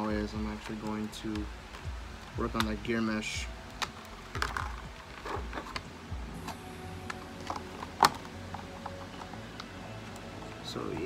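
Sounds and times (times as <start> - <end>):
hands handling plastic parts: 0.0 - 2.9, 3.6 - 11.0.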